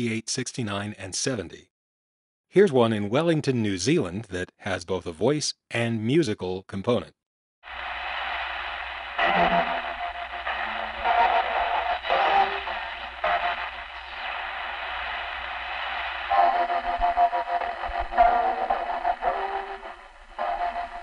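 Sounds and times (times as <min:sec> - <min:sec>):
radio static and hum: 0:07.7 - 0:21.0
radio station identification signal: 0:09.2 - 0:14.2.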